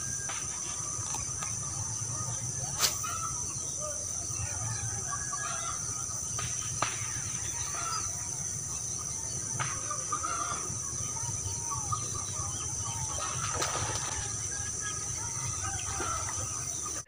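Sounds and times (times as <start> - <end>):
short bird calls: 0.7 - 8.2.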